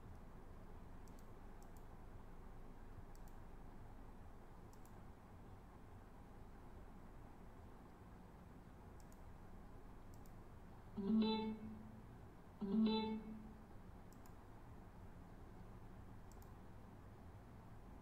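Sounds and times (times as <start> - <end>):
faint mouse clicks: 1.0 - 2.0, 3.0 - 3.5, 4.6 - 5.1, 8.9 - 9.4, 10.0 - 10.4, 14.1 - 14.5, 16.2 - 16.7
short electronic chimes: 12.6 - 13.5.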